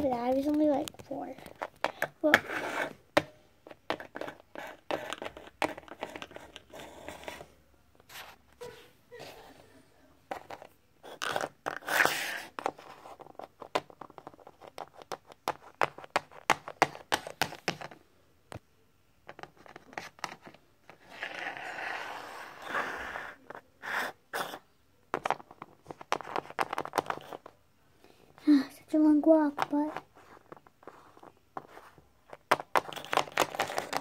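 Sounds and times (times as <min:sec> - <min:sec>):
toy scraping on wood: 0:01.7 - 0:03.0, 0:11.1 - 0:13.4, 0:19.9 - 0:24.6.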